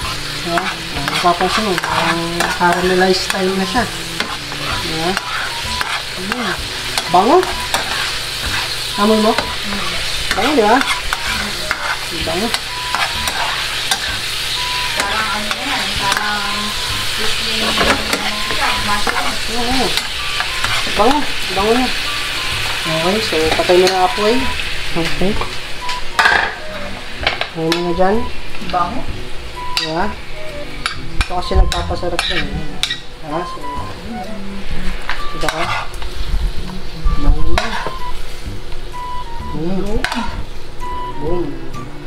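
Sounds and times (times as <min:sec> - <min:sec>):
metal spoon scraping a pan: 0:00.0 - 0:16.2, 0:17.0 - 0:21.8, 0:30.8 - 0:33.0, 0:35.4 - 0:36.0, 0:37.6 - 0:38.0
mushrooms sizzling in a pan: 0:00.0 - 0:41.8.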